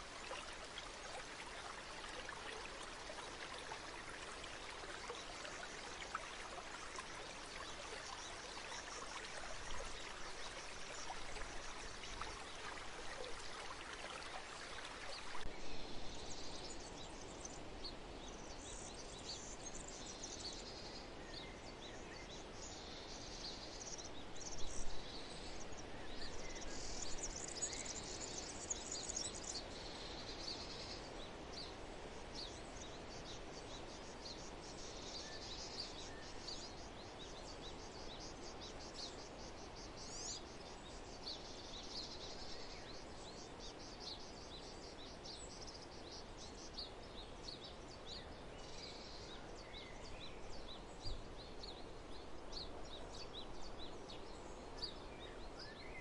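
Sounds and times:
stream water flowing: 0.0 - 15.7
soft background hiss: 0.0 - 56.0.

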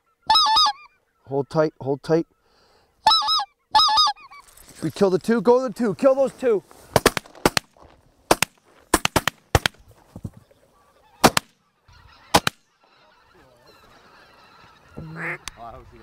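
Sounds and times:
geese honking: 0.0 - 4.6, 10.2 - 16.0
shotgun blasts: 6.9 - 9.8, 11.2 - 11.6, 12.3 - 12.6.

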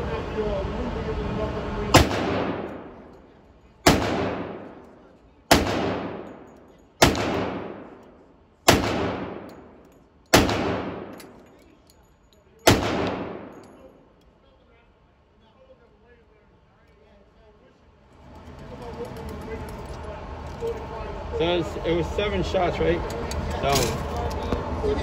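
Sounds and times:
handgun shots echoing indoors: 2.0 - 3.2, 3.8 - 11.5, 12.6 - 13.9.

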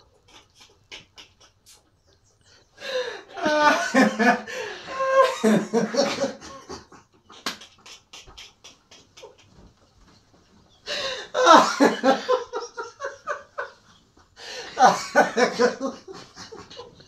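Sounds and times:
man laughing: 0.0 - 1.8, 2.8 - 9.6, 11.2 - 13.8, 14.6 - 17.0.

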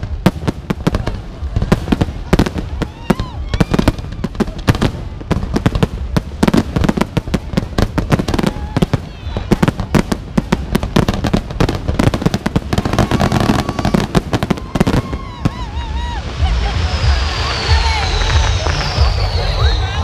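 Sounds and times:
fireworks bangs and crackles: 0.0 - 20.0.

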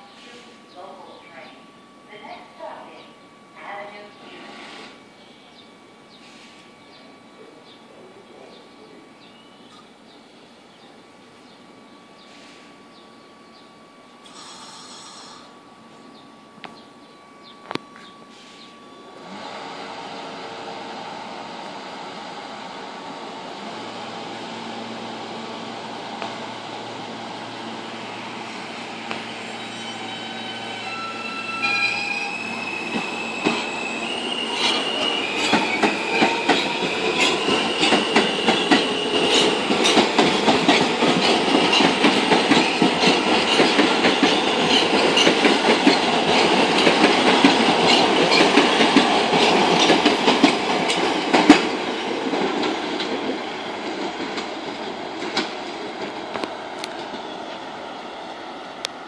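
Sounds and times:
electric train whine: 0.0 - 59.0
wheels clacking over rail joints: 34.6 - 57.3.

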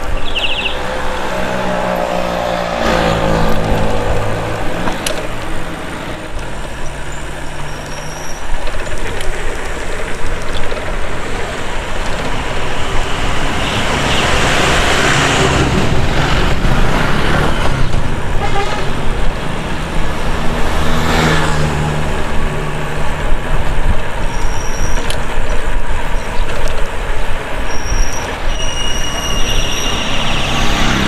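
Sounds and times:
road traffic noise: 0.0 - 31.0
vehicle engine passing: 0.6 - 7.8, 13.2 - 23.8.

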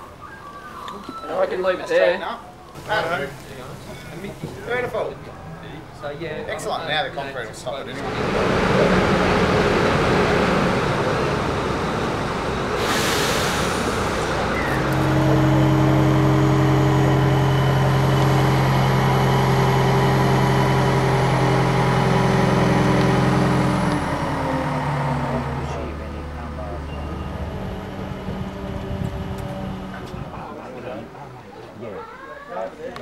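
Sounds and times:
diesel engine running: 8.0 - 30.4
hiss of air: 12.7 - 14.8.

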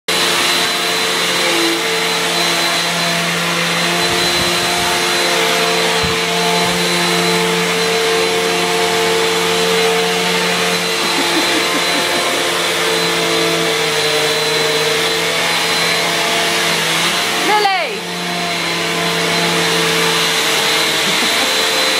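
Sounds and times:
vacuum cleaner motor whine: 0.1 - 21.9.

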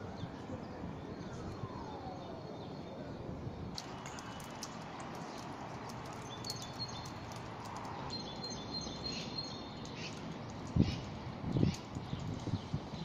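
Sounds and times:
outdoor background noise: 0.0 - 13.0
small birds chirping: 3.8 - 13.0.

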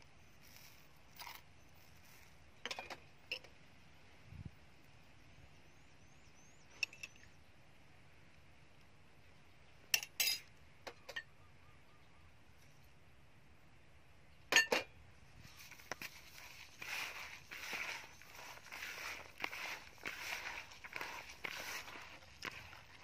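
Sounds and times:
metal spoon clinking on dishes: 10.0 - 10.5.

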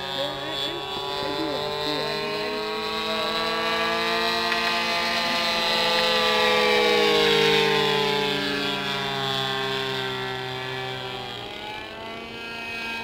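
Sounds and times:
model plane engine running: 0.0 - 13.0.

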